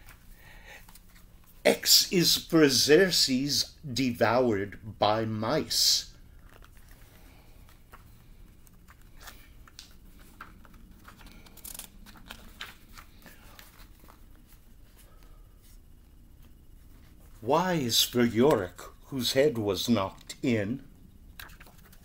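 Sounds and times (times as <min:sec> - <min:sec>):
low room hum: 0:00.0 - 0:22.0
paper pages rustling: 0:06.3 - 0:17.4, 0:21.3 - 0:22.0.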